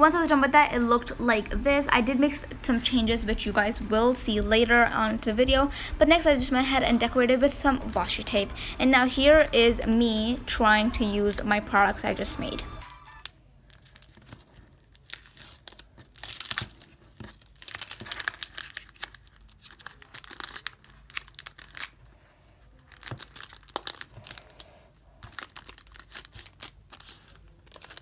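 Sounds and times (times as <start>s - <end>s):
plastic crinkling: 7.8s - 28.0s.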